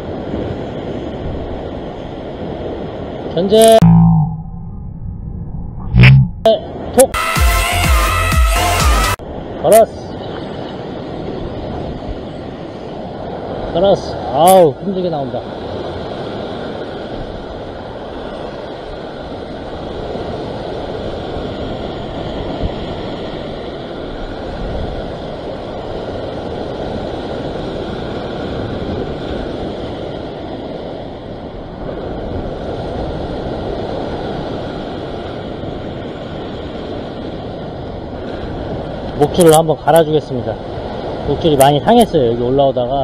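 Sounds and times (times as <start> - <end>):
wind buffeting microphone: 15.5 - 39.3.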